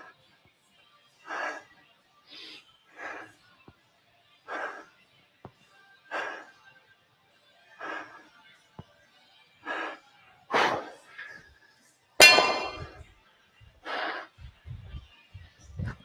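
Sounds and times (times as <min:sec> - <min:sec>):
hard breathing: 0:02.3 - 0:03.4, 0:06.1 - 0:06.6, 0:07.8 - 0:08.3, 0:09.6 - 0:11.6, 0:12.2 - 0:13.0, 0:13.8 - 0:16.0
dumbbells clanging on floor: 0:12.2 - 0:13.0.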